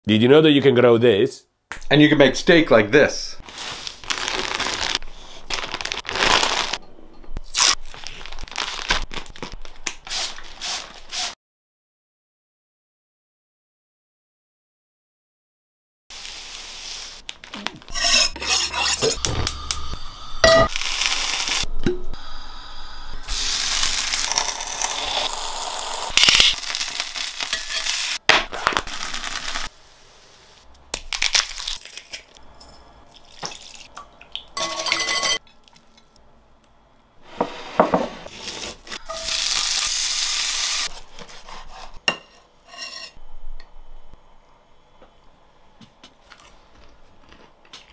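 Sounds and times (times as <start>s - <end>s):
food frying and sizzling: 16.1s - 17.2s, 17.9s - 32.4s, 37.3s - 41.9s
knife on honing steel: 17.9s - 19.8s, 42.1s - 43.2s
utensils and dishes clinking: 34.6s - 36.1s.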